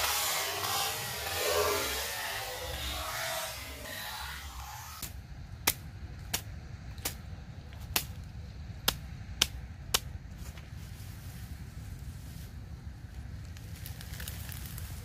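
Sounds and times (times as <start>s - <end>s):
steady low rumble: 0.0s - 15.0s
machete chopping grass: 4.6s - 7.2s, 7.8s - 8.2s, 8.8s - 10.6s.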